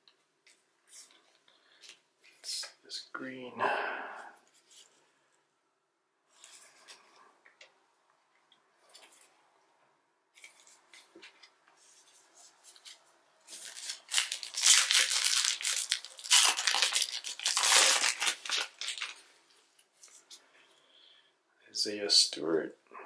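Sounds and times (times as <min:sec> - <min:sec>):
plastic wrapper tearing and crinkling: 0:13.5 - 0:19.3.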